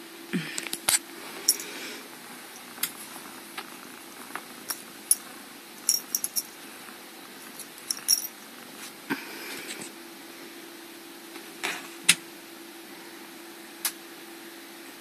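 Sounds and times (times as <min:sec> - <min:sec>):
metal collar tag clinking: 0:01.5 - 0:01.7, 0:04.7 - 0:06.6, 0:07.4 - 0:08.4.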